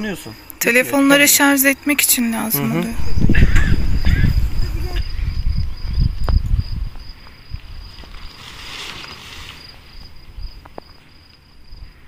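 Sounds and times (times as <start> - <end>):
crickets chirping: 0.0 - 12.0
low rumble on microphone: 2.9 - 8.0
soft rustle: 7.8 - 10.2.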